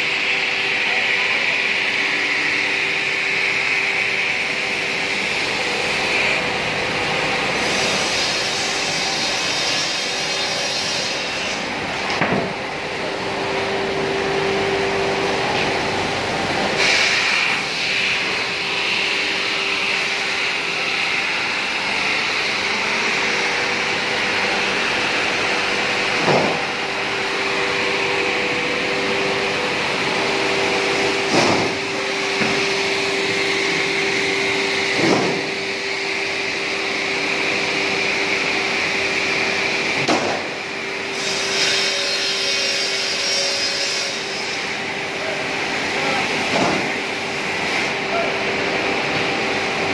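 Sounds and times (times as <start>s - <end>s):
sanding machine drone: 13.0s - 48.1s.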